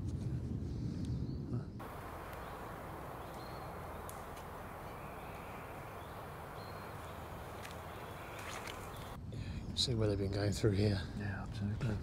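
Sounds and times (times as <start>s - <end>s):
faint bird chirps: 1.2s - 9.8s
steady background hiss: 1.8s - 9.2s.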